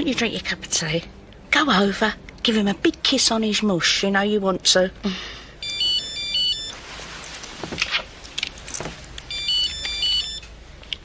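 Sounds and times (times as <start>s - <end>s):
phone ringtone beeps: 5.6s - 6.8s, 9.3s - 10.5s.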